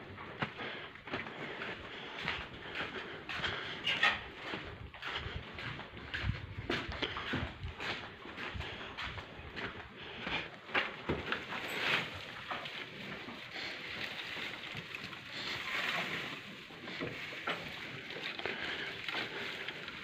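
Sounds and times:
hay rustling and crackling: 11.1s - 20.0s.

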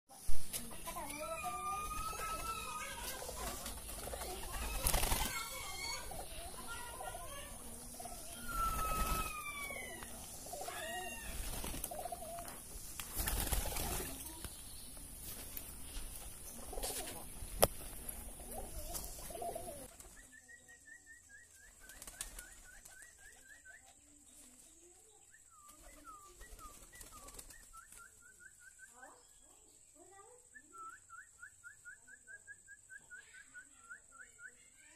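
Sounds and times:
bird calls: 0.2s - 34.9s
pigeons flapping wings: 1.7s - 14.5s, 15.4s - 20.4s, 21.6s - 23.6s, 25.6s - 28.3s.

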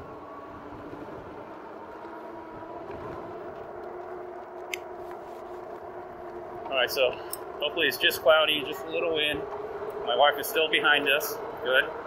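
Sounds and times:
wind noise: 0.0s - 1.6s, 2.4s - 6.8s
electric hub motor whine: 0.0s - 12.0s.

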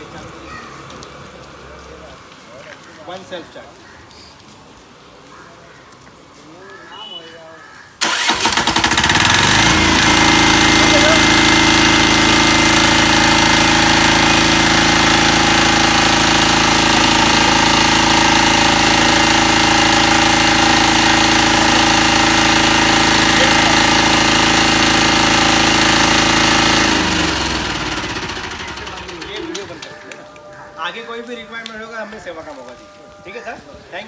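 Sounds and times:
diesel generator running: 8.0s - 30.5s.

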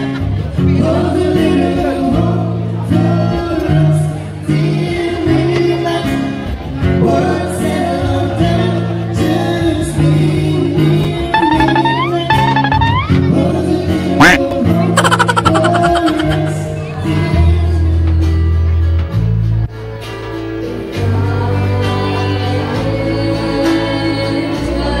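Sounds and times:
acoustic guitar: 0.0s - 25.0s
person singing: 14.2s - 16.7s.

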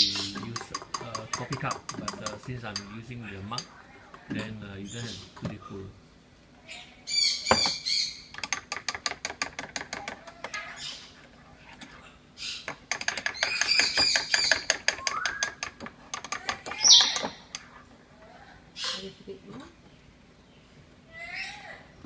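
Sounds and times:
high chirping: 0.0s - 0.6s, 6.7s - 8.3s, 12.0s - 15.6s, 16.5s - 17.5s
spoon clinking in ceramic mugs: 0.0s - 3.7s.

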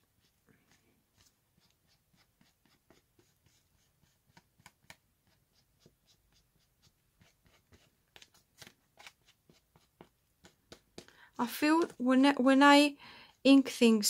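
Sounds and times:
ink pad tapping on paper: 9.7s - 12.1s.

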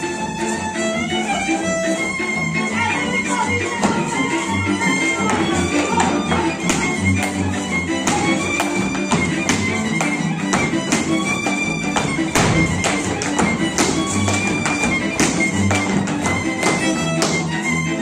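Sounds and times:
fiddle folk dance music: 0.0s - 18.0s
boots tapping on wooden stage: 3.6s - 18.0s.

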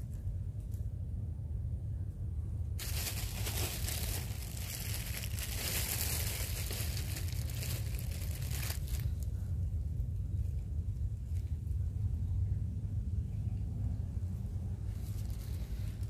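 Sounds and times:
low rumble: 0.0s - 16.0s
close crinkling and rustling: 2.8s - 9.3s.

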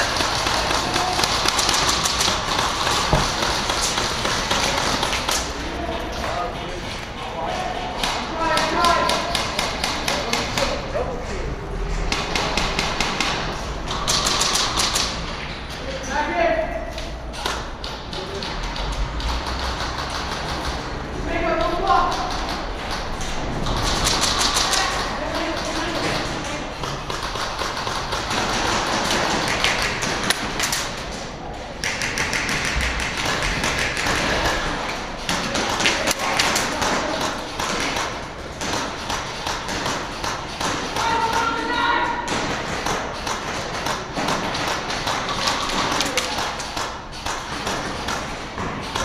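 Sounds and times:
airsoft guns firing: 0.0s - 5.6s, 12.1s - 15.2s, 21.6s - 31.2s, 31.8s - 49.0s
players' voices: 0.0s - 49.0s.

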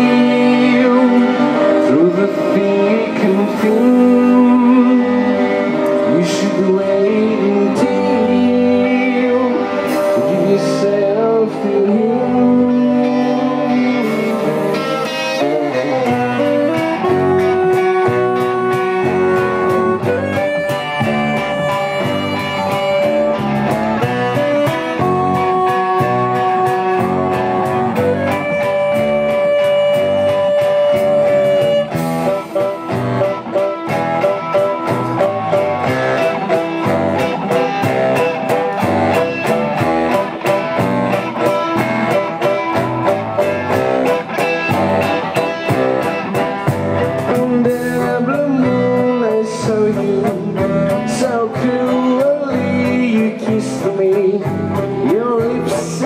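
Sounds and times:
electric guitar: 0.0s - 56.0s
violin: 0.0s - 56.0s
steady beat: 14.0s - 49.1s.

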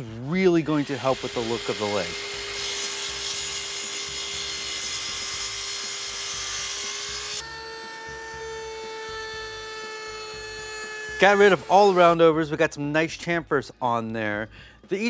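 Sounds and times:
miter saw cutting wood: 0.0s - 12.4s
router whining: 0.6s - 12.2s.

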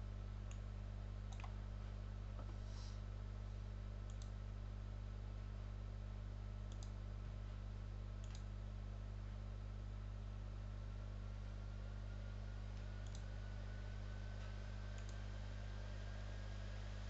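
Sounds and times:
steady low hum: 0.0s - 17.0s
computer mouse clicks: 1.3s - 1.6s, 4.1s - 4.4s, 6.7s - 7.0s, 8.2s - 8.5s, 12.8s - 13.3s, 15.0s - 15.2s.

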